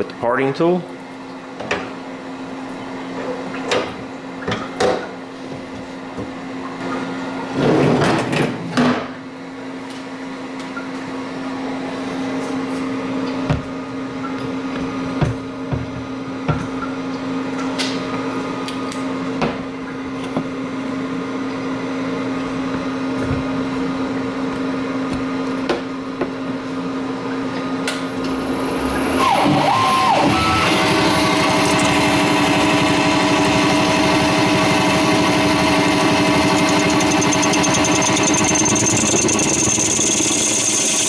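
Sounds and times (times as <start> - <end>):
lathe running: 28.2 - 41.0
coolant spraying: 36.4 - 41.0.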